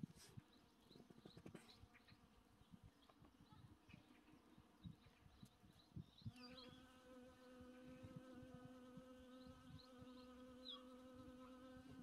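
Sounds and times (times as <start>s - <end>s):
honeybee buzzing: 6.4s - 12.0s.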